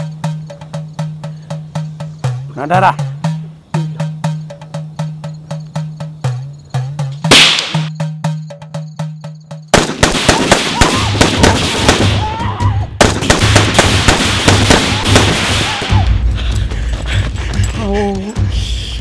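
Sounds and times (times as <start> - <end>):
rapid firecracker cracks: 7.3 - 7.9, 9.7 - 12.3, 13.0 - 16.1.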